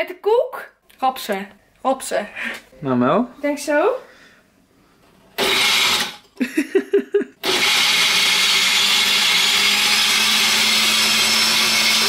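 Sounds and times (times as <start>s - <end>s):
blender crushing biscuits: 5.4s - 6.4s, 7.4s - 12.0s.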